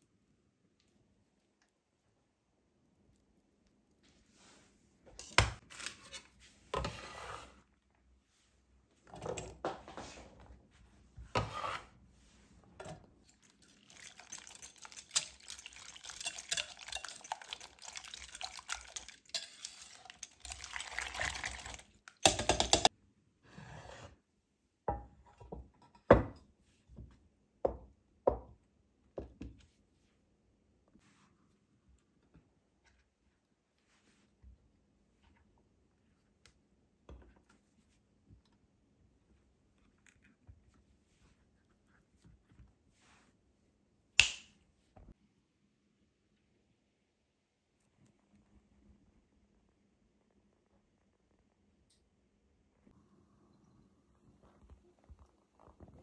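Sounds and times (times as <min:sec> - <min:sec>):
kitchenware clatters and scrapes: 0:05.1 - 0:07.6, 0:12.8 - 0:22.9, 0:25.2 - 0:26.5
wire whisk beating eggs in bowl: 0:13.2 - 0:22.9.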